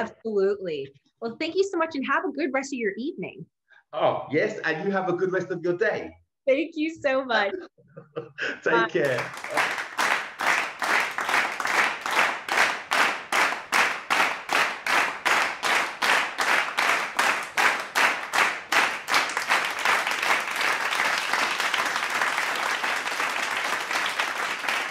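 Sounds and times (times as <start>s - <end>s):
crowd clapping in unison: 8.7s - 24.9s
general applause: 8.7s - 24.9s.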